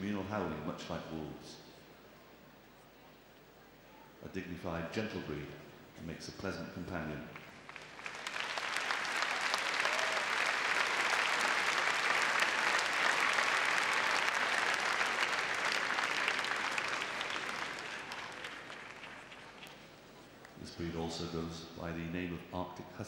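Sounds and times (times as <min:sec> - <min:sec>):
audience applauding: 0:07.3 - 0:20.6.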